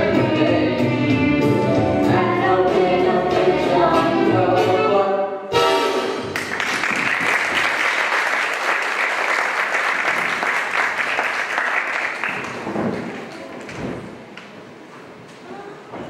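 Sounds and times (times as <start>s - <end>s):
audience applauding: 6.3s - 13.8s.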